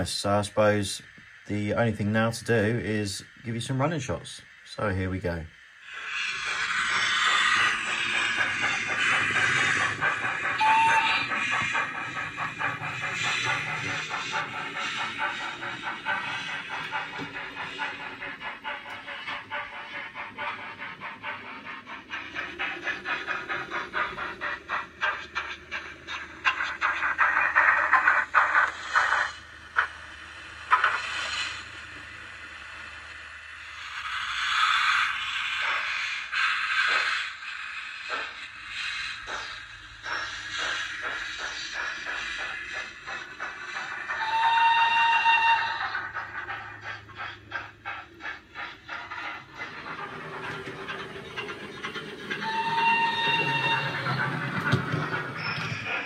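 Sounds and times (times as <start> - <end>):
steam hissing: 0.0 - 56.0
steam locomotive exhaust chuffs: 0.0 - 56.0
steam whistle: 10.6 - 11.4, 44.2 - 45.9, 52.4 - 54.1.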